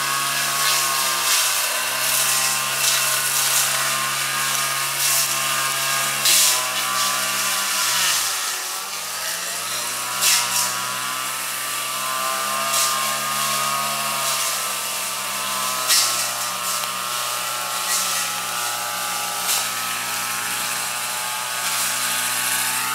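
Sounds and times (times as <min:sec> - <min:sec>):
brush cutter engine running: 0:00.0 - 0:22.9
sharp cracks of striking stems: 0:00.6 - 0:07.6, 0:10.1 - 0:10.8, 0:15.8 - 0:20.8.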